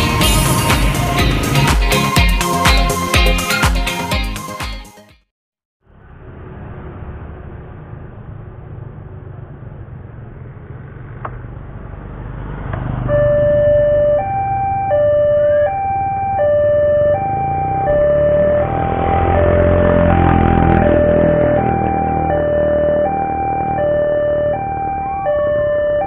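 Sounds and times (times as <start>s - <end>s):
motorcycles passing: 0.0s - 4.2s, 5.9s - 26.0s
level crossing two-tone alarm: 13.1s - 26.0s.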